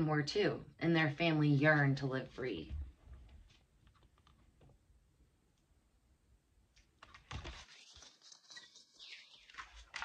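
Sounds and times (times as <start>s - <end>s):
book pages rustling: 6.9s - 10.0s.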